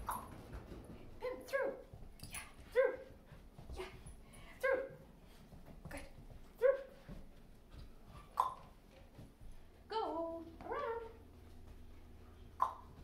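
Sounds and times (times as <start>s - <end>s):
dog yipping: 12.6s - 12.9s.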